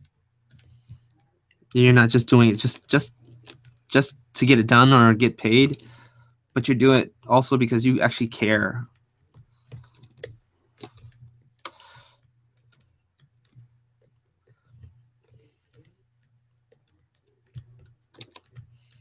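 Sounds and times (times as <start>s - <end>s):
keyboard and mouse clicks: 0.0s - 1.8s, 2.6s - 3.9s, 8.9s - 19.0s.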